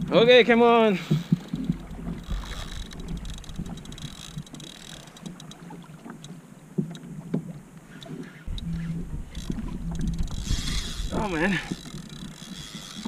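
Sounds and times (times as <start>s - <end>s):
water lapping against hull: 0.0s - 13.0s
wind on microphone: 8.1s - 13.0s.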